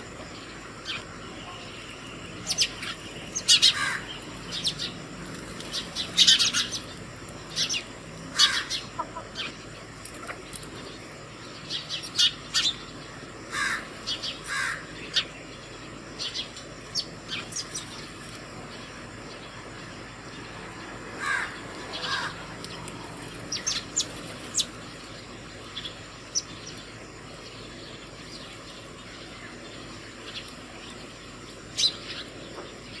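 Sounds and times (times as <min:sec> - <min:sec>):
sparrows chirping: 0:00.0 - 0:33.0.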